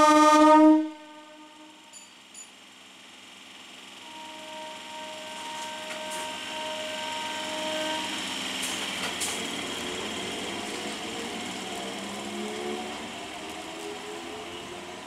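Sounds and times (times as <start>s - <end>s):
electric train motors whining: 0.0s - 15.0s.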